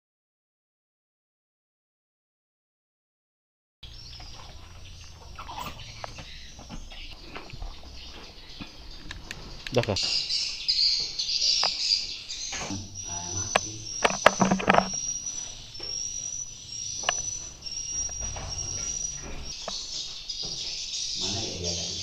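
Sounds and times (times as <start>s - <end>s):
swiftlets twittering: 11.3s - 19.8s.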